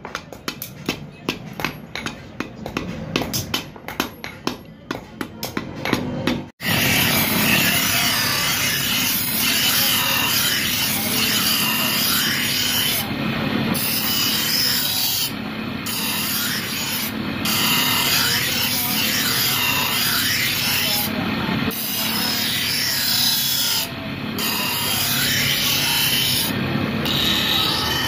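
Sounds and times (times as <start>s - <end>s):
blade grinding on grinding wheel: 6.6s - 28.0s
grinder motor humming: 6.6s - 28.0s.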